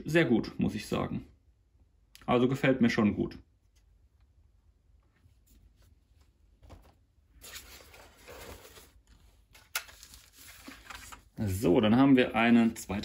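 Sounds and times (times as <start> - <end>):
rustling and scraping packaging: 5.3 - 11.4.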